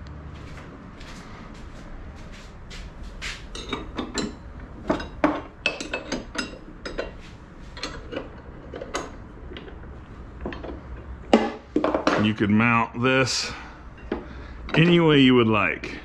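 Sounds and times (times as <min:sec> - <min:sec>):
metal clinking and knocking: 0:03.5 - 0:12.3.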